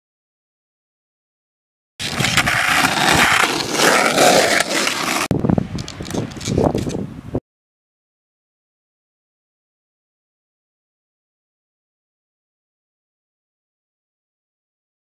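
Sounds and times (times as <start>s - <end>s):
skateboard wheels rolling on asphalt: 2.0s - 7.2s.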